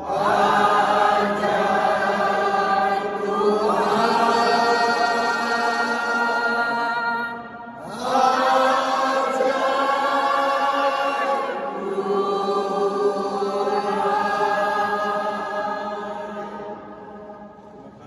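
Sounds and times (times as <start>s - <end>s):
group singing a hymn: 0.0s - 17.7s.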